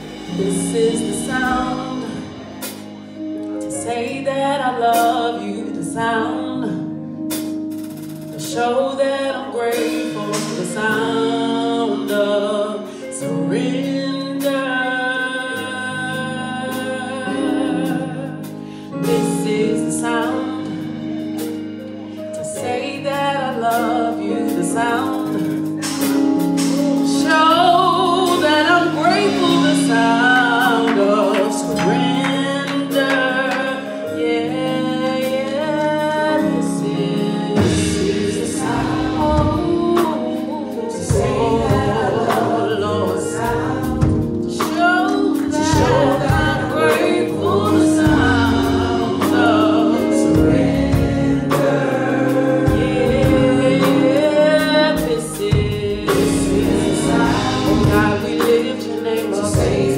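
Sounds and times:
female vocalists singing gospel: 0:00.0 - 0:03.0, 0:03.6 - 0:07.0, 0:08.4 - 0:21.4, 0:22.0 - 0:59.9
deep bass notes: 0:00.0 - 0:04.7, 0:24.5 - 0:59.9
sustained keyboard chords: 0:00.0 - 0:59.9.

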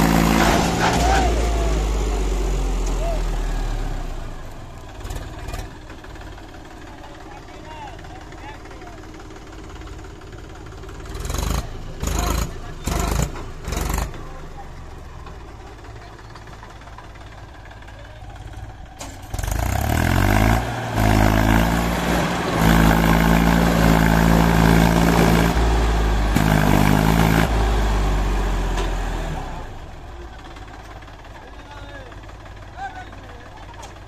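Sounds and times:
tractor diesel engine revving: 0:00.0 - 0:34.0.

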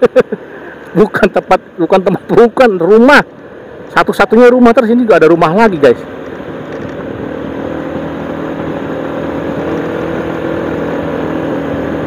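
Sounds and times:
motorcycle engine running: 0:05.7 - 0:12.0.

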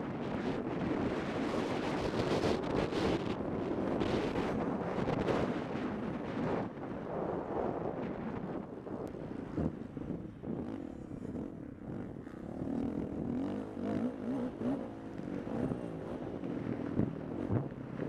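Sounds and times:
dirt bike engine revving: 0:09.7 - 0:18.0.

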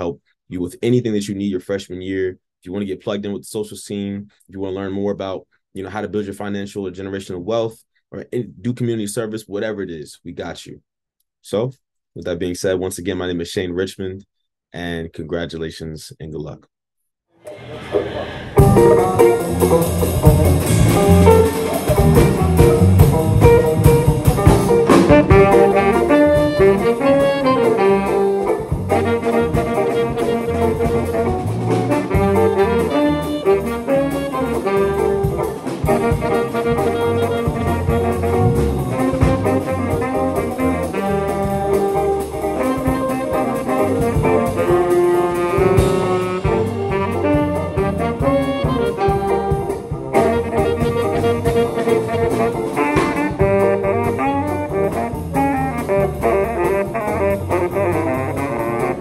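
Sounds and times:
jazz combo playing: 0:17.5 - 0:59.0
saxophones playing melody: 0:18.6 - 0:59.0.

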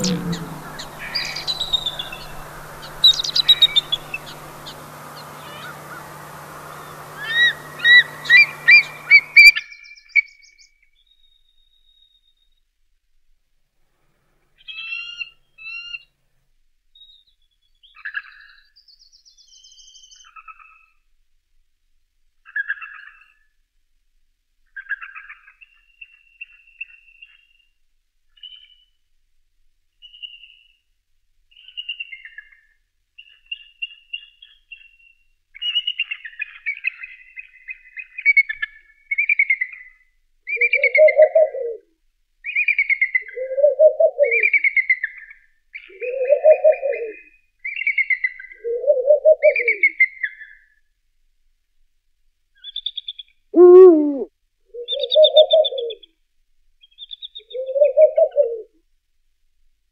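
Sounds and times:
loud sliding bird call: 0:00.0 - 0:09.5
owl deep hoots: 0:00.0 - 0:09.5, 0:40.6 - 0:41.8, 0:53.6 - 0:56.0
eagle high chirping calls: 0:00.0 - 0:09.6, 0:53.6 - 0:56.0
raspy high-pitched calls: 0:00.0 - 0:09.6, 0:53.6 - 0:54.3.

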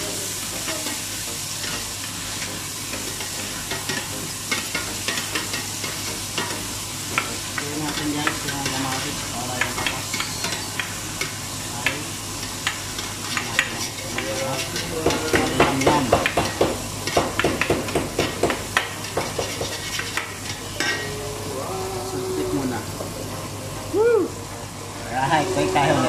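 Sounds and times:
onions and tomatoes sizzling: 0:00.0 - 0:26.0.

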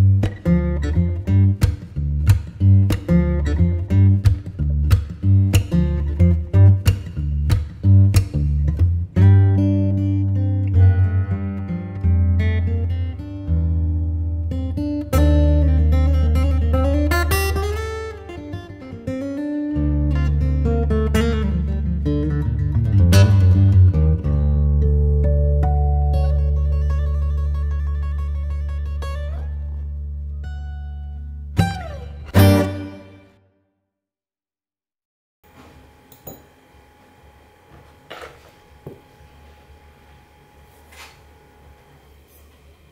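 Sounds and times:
acoustic guitar plucked notes: 0:00.0 - 0:33.4
low held bass: 0:19.8 - 0:33.2.

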